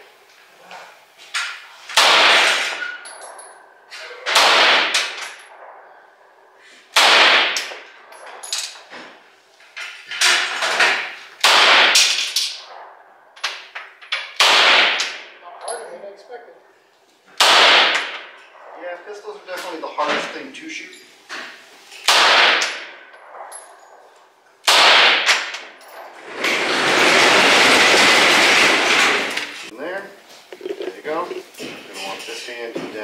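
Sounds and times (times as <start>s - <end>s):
pistol shots echoing: 2.0s - 2.8s, 4.3s - 5.2s, 6.9s - 7.8s, 11.4s - 12.7s, 14.3s - 15.4s, 17.4s - 18.4s, 22.1s - 23.5s, 24.6s - 25.8s.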